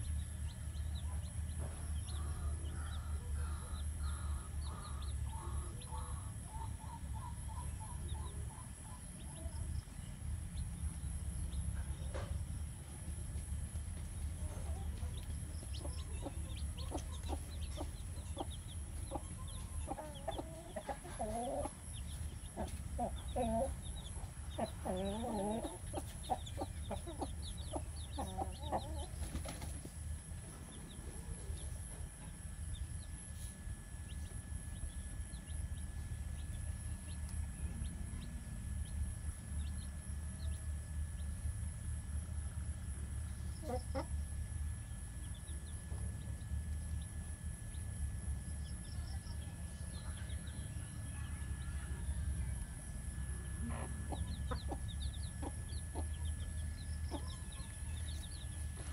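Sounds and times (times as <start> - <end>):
chickens clucking: 0.0 - 34.4, 43.4 - 44.4, 52.5 - 58.9
chicks peeping: 0.0 - 58.9
low steady rumble: 0.0 - 58.9.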